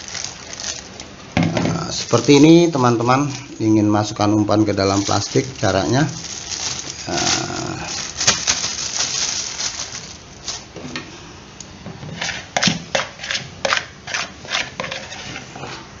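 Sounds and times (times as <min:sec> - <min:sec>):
plastic bag rustling: 0:00.0 - 0:11.0
dough scraped from plastic bowl: 0:12.1 - 0:15.9.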